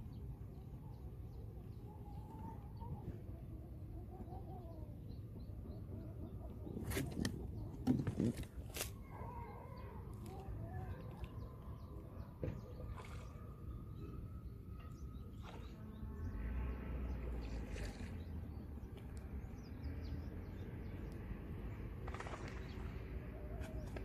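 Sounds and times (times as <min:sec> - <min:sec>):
faint bird calls: 0:00.8 - 0:16.4.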